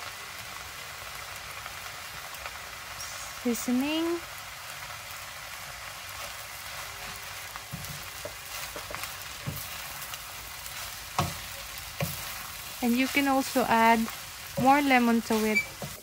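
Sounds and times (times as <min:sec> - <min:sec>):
rice sizzling in frying pan: 0:00.0 - 0:16.0
wooden spoon scraping pan: 0:06.2 - 0:16.0.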